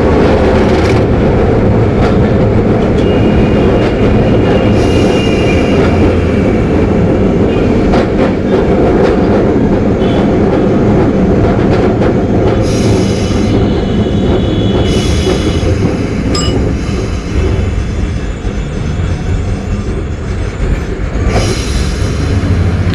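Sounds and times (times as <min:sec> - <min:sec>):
tram wheels rumbling: 0:00.0 - 0:22.9
wheels squealing on rails: 0:02.8 - 0:08.0, 0:12.5 - 0:22.9.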